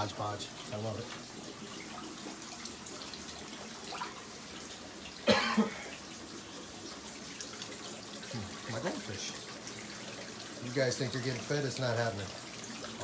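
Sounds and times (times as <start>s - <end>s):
water trickling: 0.0s - 13.0s
person coughing: 5.2s - 6.0s.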